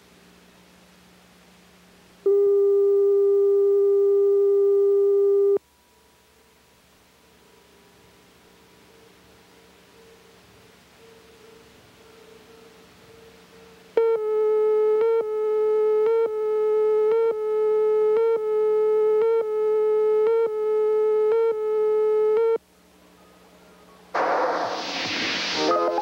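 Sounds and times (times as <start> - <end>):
tape hiss: 0.0 - 26.0
loud burst of noise: 24.1 - 26.0.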